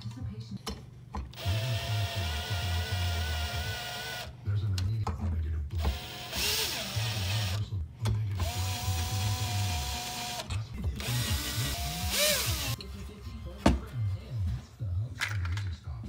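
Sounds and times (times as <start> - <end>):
cordless drill motor whine: 1.4 - 4.3, 5.8 - 7.6, 8.4 - 12.8.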